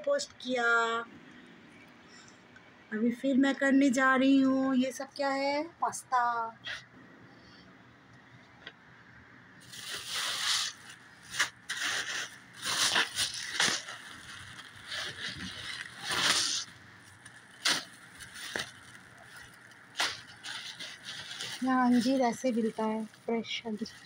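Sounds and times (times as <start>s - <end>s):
plastic bags crinkling: 9.6s - 24.0s.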